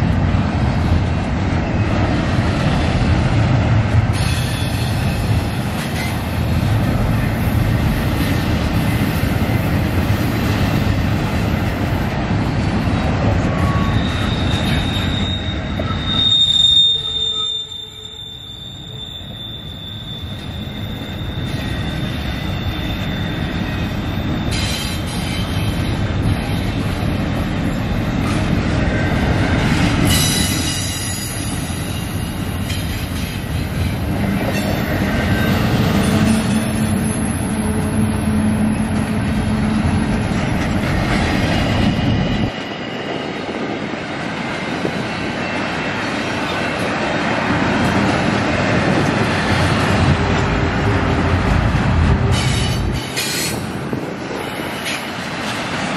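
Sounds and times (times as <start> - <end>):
train wheels rumbling on rails: 0.0 - 55.9
high wheel squeal: 13.5 - 25.7, 34.4 - 39.9.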